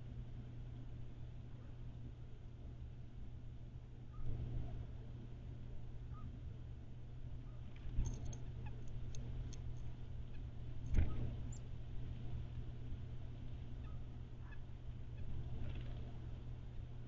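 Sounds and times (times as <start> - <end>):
steady low rumble: 0.0 - 17.0
small birds chirping: 7.3 - 16.8.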